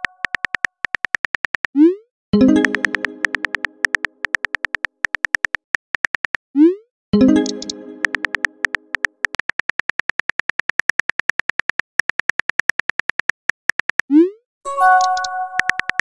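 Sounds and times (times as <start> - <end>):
phone keyboard clicks: 0.0 - 1.7, 2.6 - 6.4, 7.4 - 14.1, 15.0 - 16.0
short chime: 14.7 - 15.6.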